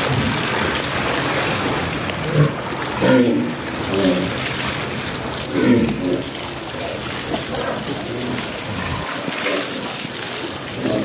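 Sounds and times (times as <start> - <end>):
hose water spraying on rock: 3.9 - 11.0.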